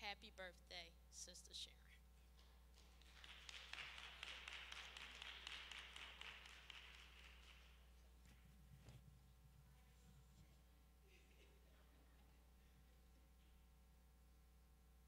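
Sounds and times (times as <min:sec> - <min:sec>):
faint scattered applause: 0:02.4 - 0:08.4.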